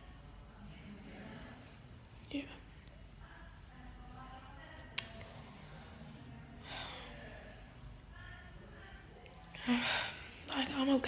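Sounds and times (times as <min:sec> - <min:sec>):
low room noise: 0:00.0 - 0:11.0
sharp click: 0:05.0 - 0:05.3.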